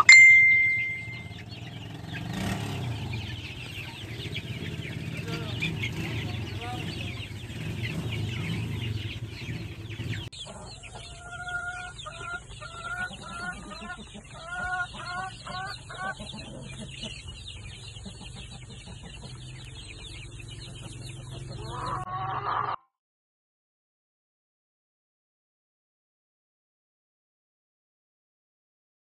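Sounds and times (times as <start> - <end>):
chicks peeping: 0.0 - 22.8
chickens clucking: 0.0 - 22.9.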